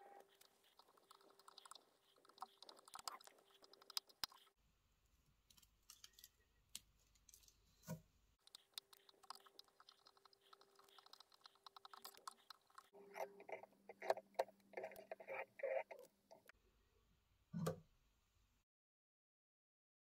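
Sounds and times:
fibres rustling: 0.0 - 4.5, 5.5 - 16.5.

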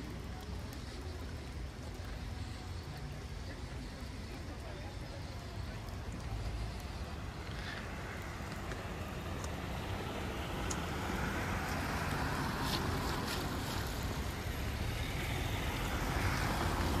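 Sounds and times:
faint ticks: 0.0 - 9.7, 10.6 - 10.9.

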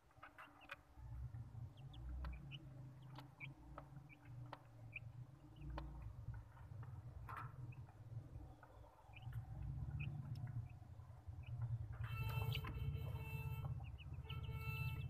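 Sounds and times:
chicks peeping softly: 0.0 - 15.0
pecking clicks and scratches: 2.0 - 10.8.

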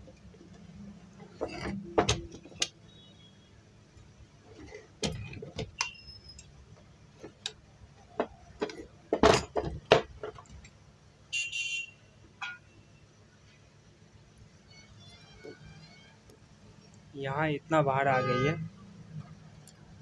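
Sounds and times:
metal knocks and clinks: 7.3 - 10.7.

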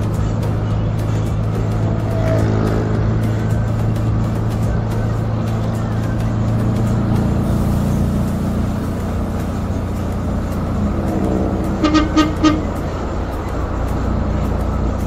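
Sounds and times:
minibus engine running: 0.0 - 15.0
short vehicle horn beep: 11.7 - 12.8.

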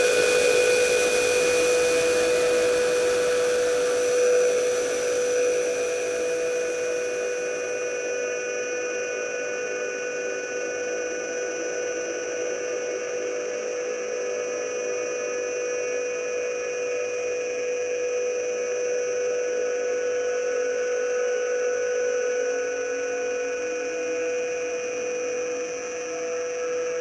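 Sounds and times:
ambient drone of held tones: 0.0 - 17.6.

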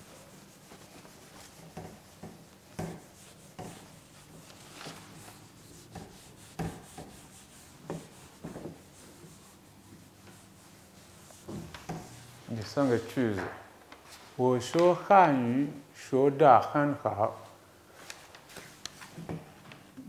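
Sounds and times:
eraser wiping whiteboard: 0.0 - 13.2.

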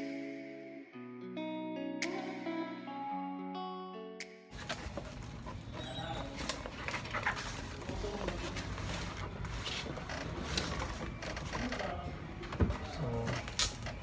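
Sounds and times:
cardboard rustling and scraping: 4.5 - 11.8.

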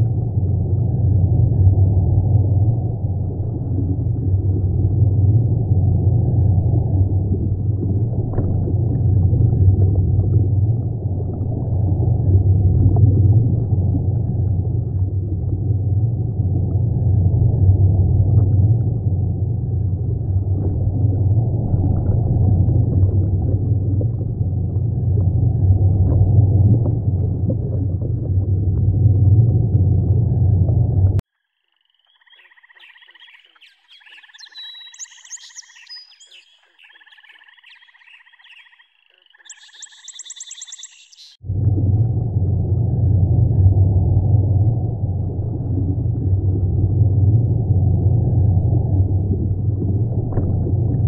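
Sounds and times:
aquarium filter pump rumble: 0.0 - 31.2, 41.4 - 51.0
water gurgling: 0.0 - 31.2, 41.4 - 51.0.

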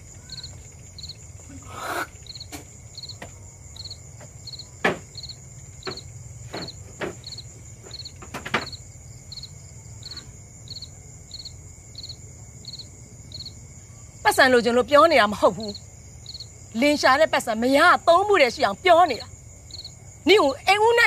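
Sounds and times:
crickets chirping: 0.0 - 21.0
high insect hum: 0.0 - 21.0
bamboo floor knocking and creaking: 4.2 - 8.8.

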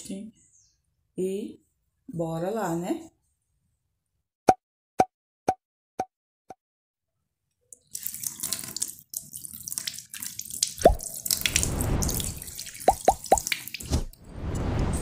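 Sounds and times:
water drips and splashes: 7.7 - 14.2
tap water running: 7.8 - 13.9.

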